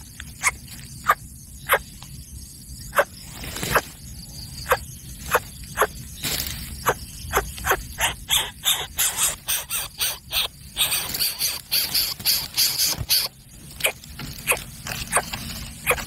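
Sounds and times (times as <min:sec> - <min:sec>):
bird chick squeaky begging calls: 0:06.8 - 0:16.0.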